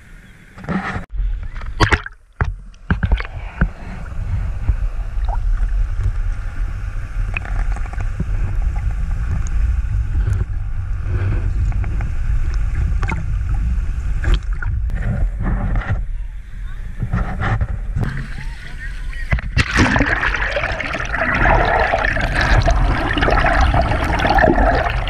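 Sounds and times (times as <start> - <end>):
low underwater rumble: 1.1 - 25.0
water splashes: 18.0 - 25.0.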